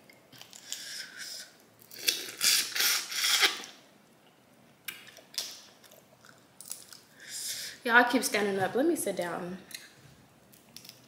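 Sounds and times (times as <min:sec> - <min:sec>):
wet slurping and sucking: 0:00.5 - 0:03.7.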